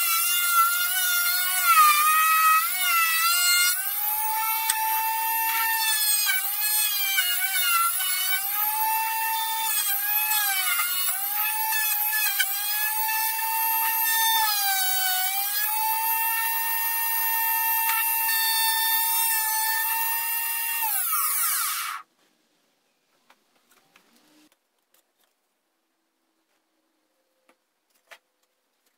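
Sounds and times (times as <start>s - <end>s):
router whining while cutting wood: 0.0s - 22.0s.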